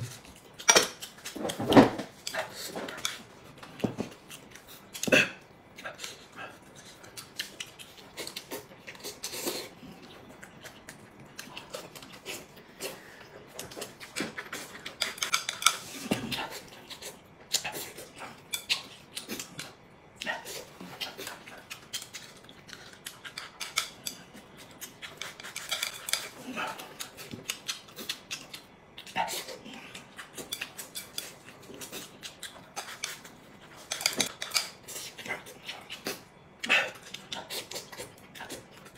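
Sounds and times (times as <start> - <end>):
chewing: 0.0 - 38.9.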